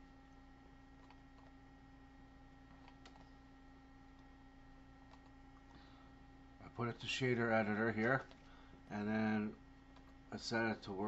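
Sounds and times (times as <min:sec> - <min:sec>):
faint electrical hum: 0:00.0 - 0:11.0
computer mouse clicks: 0:01.0 - 0:01.6, 0:02.6 - 0:03.4, 0:05.0 - 0:05.8, 0:08.0 - 0:08.5, 0:09.9 - 0:10.2.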